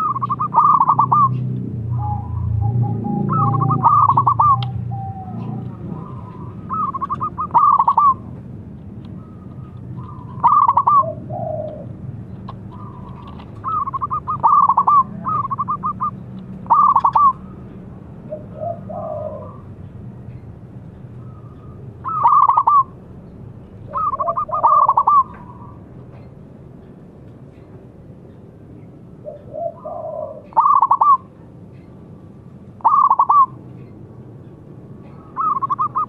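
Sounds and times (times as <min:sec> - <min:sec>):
dove cooing: 0:00.0 - 0:08.3, 0:09.2 - 0:17.6, 0:18.2 - 0:19.8, 0:21.3 - 0:23.0, 0:23.9 - 0:25.8, 0:29.2 - 0:31.3, 0:32.8 - 0:33.6, 0:35.0 - 0:36.0
soft low bird call: 0:00.0 - 0:08.3, 0:29.2 - 0:32.0, 0:32.8 - 0:34.0, 0:35.0 - 0:36.0.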